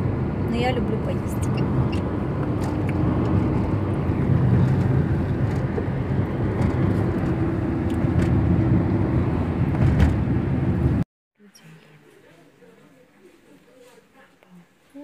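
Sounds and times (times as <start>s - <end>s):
road and engine rumble: 0.0s - 14.8s.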